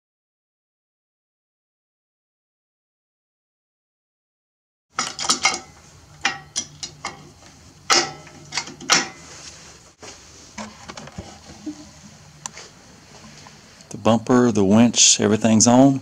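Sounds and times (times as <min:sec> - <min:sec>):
metal winch hook clicking: 0:05.0 - 0:09.2.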